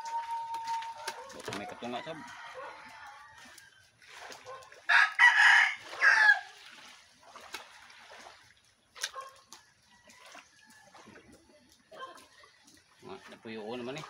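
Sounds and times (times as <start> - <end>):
rooster crowing: 0.0 - 3.8, 4.9 - 6.5.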